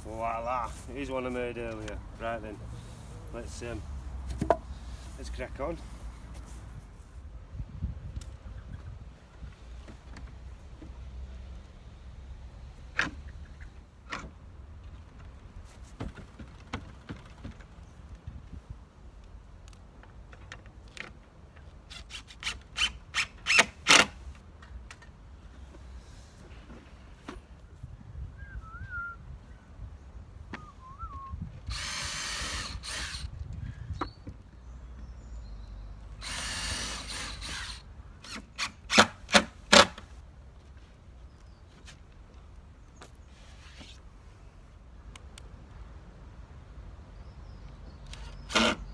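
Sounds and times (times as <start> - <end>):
wind rumble on microphone: 6.6 - 9.8, 17.8 - 19.0, 27.6 - 32.5, 33.1 - 34.3
power drill driving into wood: 31.7 - 33.3, 36.2 - 39.9, 48.2 - 48.9.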